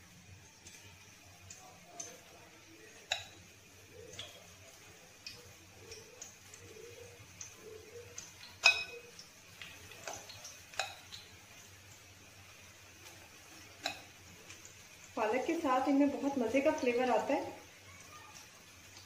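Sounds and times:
spoon clinking against bowl: 0:08.6 - 0:09.1.

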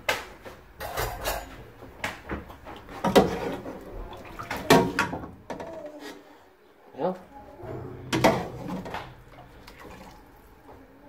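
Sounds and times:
liquid moving: 0:07.6 - 0:10.8.

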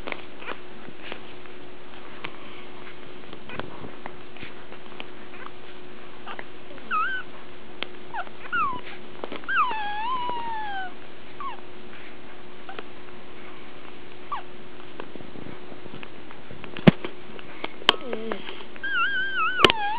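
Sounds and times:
steady low hum: 0:00.0 - 0:19.9
puppies whimpering: 0:06.2 - 0:07.4, 0:08.1 - 0:11.6, 0:14.3 - 0:14.5, 0:17.9 - 0:19.9.

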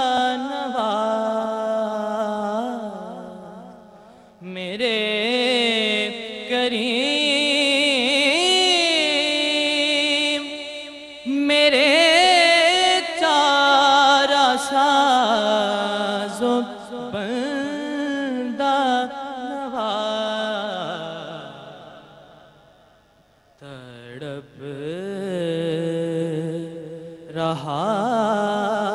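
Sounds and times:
man singing unaccompanied: 0:00.0 - 0:22.6, 0:23.6 - 0:28.9.

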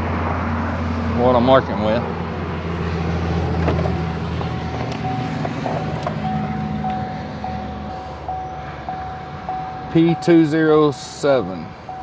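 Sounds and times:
engine humming: 0:00.0 - 0:12.0
vehicle warning chime dinging: 0:04.0 - 0:12.0.

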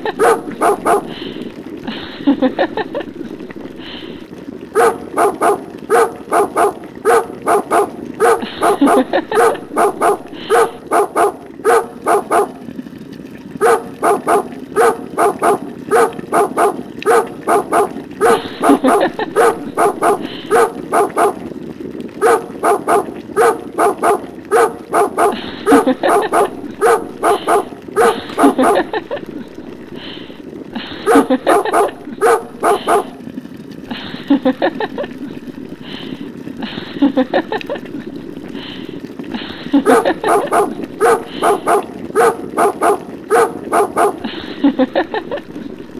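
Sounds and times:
dog barking: 0:00.1 - 0:01.2, 0:04.8 - 0:12.6, 0:13.6 - 0:21.4, 0:22.2 - 0:29.0, 0:31.0 - 0:33.2, 0:39.8 - 0:44.3.

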